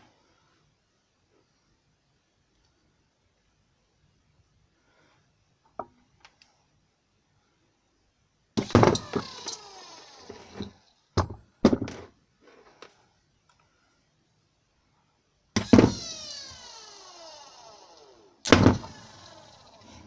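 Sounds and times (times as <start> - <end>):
electric motor whine: 8.6 - 10.8, 15.6 - 20.0.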